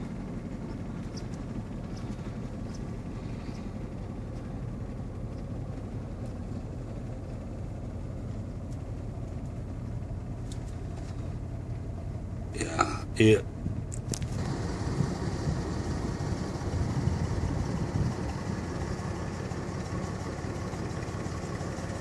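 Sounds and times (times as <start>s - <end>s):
vehicle engine rumble from inside cab: 0.0s - 22.0s
faint light ticks: 6.2s - 6.4s, 8.6s - 9.6s, 10.4s - 11.2s.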